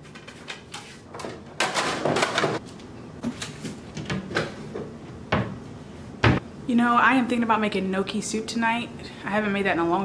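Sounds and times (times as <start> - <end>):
objects knocking and clattering: 0.0 - 2.6.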